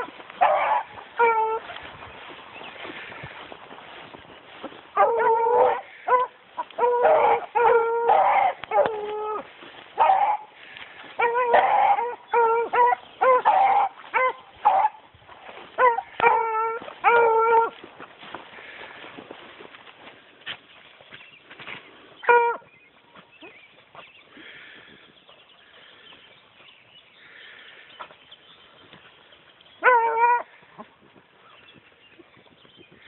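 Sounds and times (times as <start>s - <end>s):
hounds baying: 0.0s - 20.1s, 22.2s - 24.8s, 27.2s - 32.4s.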